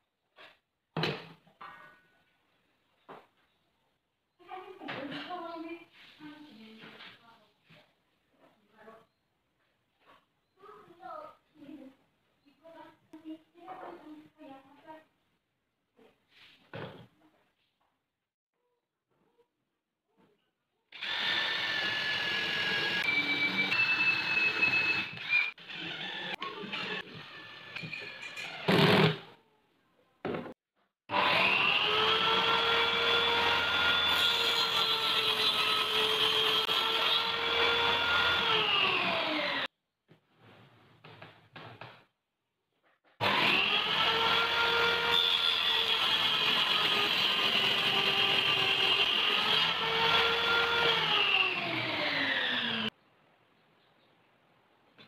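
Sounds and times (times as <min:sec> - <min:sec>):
table saw whining: 0:21.0 - 0:29.2, 0:31.1 - 0:39.7, 0:43.2 - 0:52.9.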